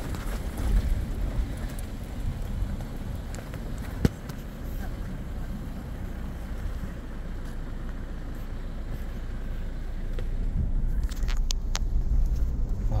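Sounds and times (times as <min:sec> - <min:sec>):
vehicle engine and tyres rumbling: 0:00.0 - 0:13.0.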